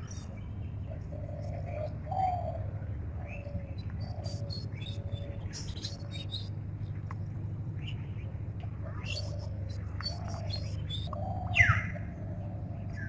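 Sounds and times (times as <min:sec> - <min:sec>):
high chirps of small birds: 0:00.0 - 0:06.6, 0:08.9 - 0:12.1
steady low hum: 0:00.0 - 0:13.0.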